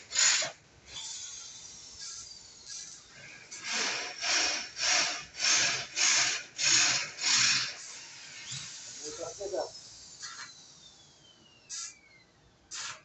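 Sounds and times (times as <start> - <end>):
welding arc hissing bursts: 0.0 - 2.4, 3.6 - 10.5, 11.7 - 11.9, 12.7 - 13.0.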